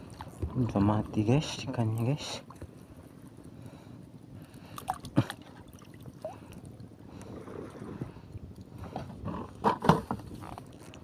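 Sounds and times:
seawater sloshing and splashing: 4.6 - 11.0.

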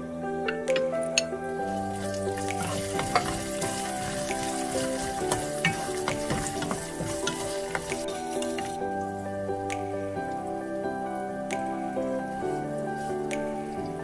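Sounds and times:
tomatoes sizzling in hot oil: 1.6 - 8.8.

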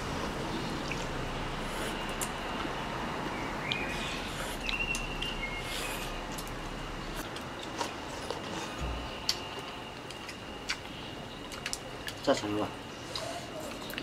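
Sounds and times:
outdoor background hiss: 0.0 - 14.0
high bird chirps: 3.3 - 6.0.

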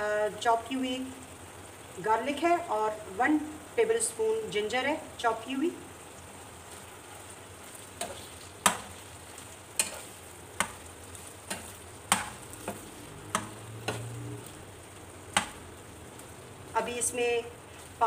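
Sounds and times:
low sizzle of liver simmering: 0.0 - 18.0
metal spoon knocking on a pan: 11.5 - 14.1.

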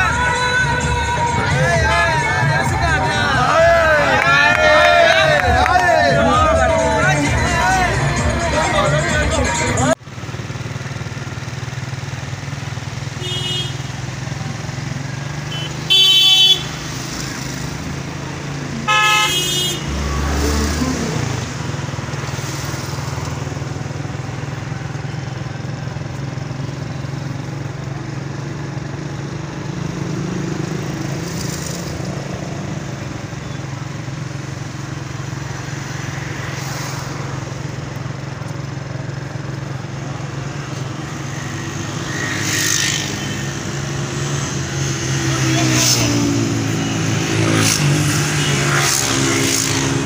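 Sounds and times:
traffic engines droning: 0.0 - 50.0
car horn toot: 13.2 - 14.0, 15.5 - 16.8, 18.8 - 20.0.

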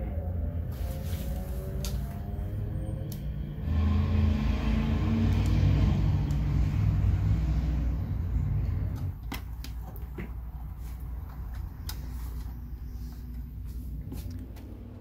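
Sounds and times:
low rumble: 0.0 - 9.2.

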